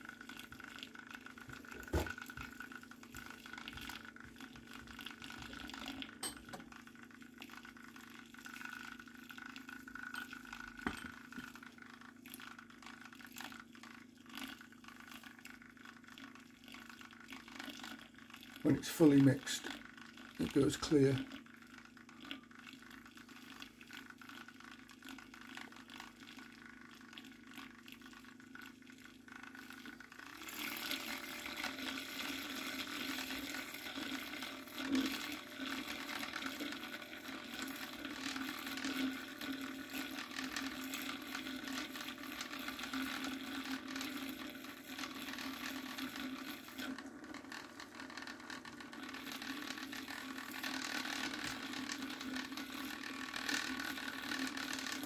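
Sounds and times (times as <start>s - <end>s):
magnetic stir plate humming: 0.0s - 11.9s.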